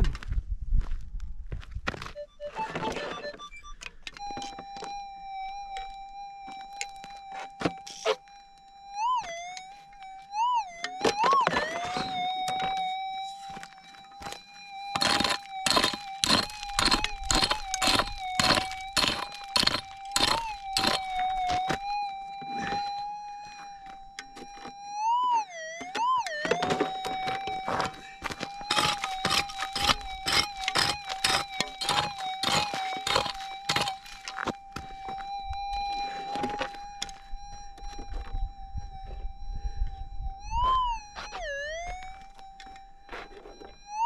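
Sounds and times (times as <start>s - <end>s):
metal detector tone: 2.2s - 44.0s
pick striking stony dirt: 14.2s - 21.8s, 26.4s - 34.6s.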